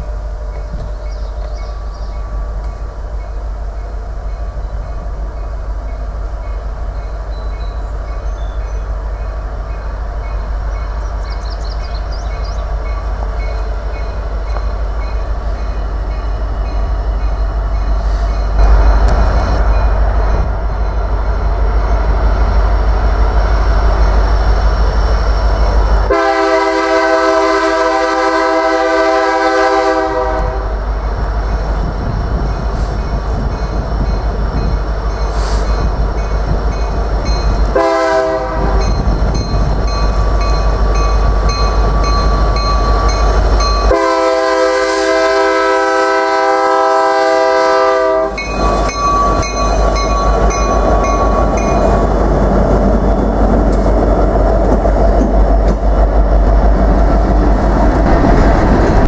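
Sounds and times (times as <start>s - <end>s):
train engine and wheel rumble: 0.0s - 59.0s
locomotive horn: 26.1s - 30.8s, 37.7s - 39.0s, 43.8s - 49.4s.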